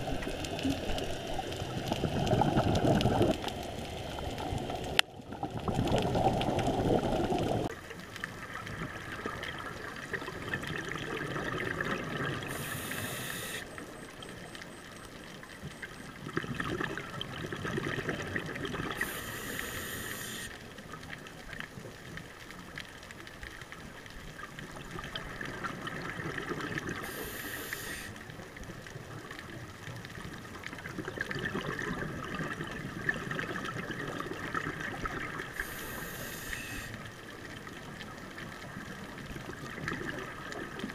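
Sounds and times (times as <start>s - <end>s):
scuba regulator breathing bubbles: 11.1s - 13.7s, 17.6s - 20.5s, 26.8s - 28.2s, 35.5s - 37.0s.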